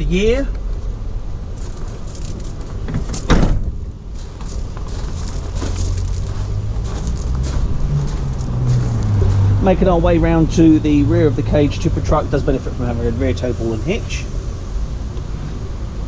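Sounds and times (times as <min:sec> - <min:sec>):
low background rumble: 0:00.0 - 0:16.0
van door slamming: 0:02.9 - 0:03.8.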